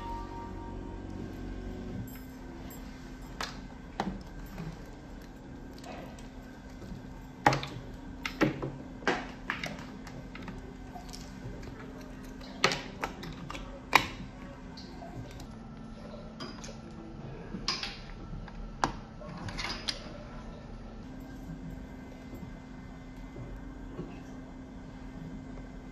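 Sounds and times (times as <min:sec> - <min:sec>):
steady low machine hum: 0:00.0 - 0:25.9.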